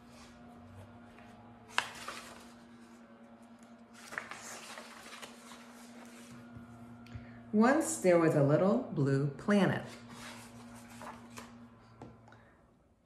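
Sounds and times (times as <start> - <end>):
faint steady hum: 0.0 - 13.0
paper page rustling: 1.1 - 3.1, 3.9 - 6.5, 9.9 - 11.6.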